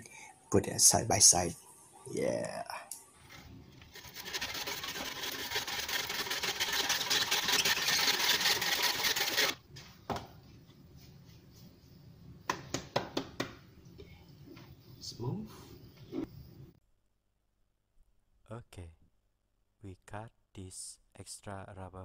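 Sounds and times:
handsaw sawing rubber pipe: 3.9 - 9.6.

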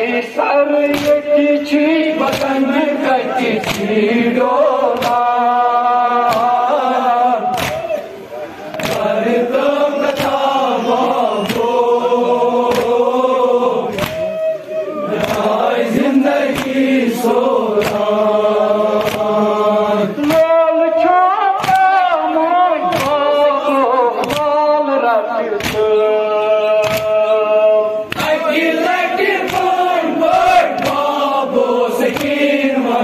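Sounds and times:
men chanting in unison: 0.0 - 33.0
hands striking chests: 7.5 - 8.0.

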